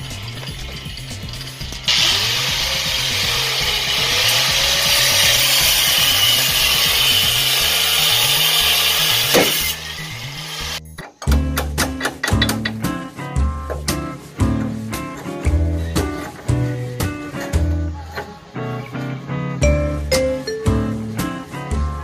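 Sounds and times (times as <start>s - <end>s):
grinder cutting steel: 0.0s - 10.8s.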